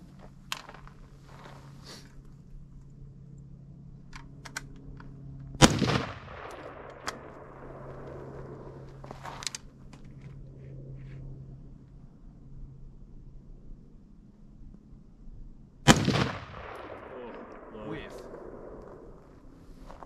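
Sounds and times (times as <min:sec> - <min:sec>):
rifle shot with echo: 0:05.6 - 0:09.0, 0:15.9 - 0:19.4.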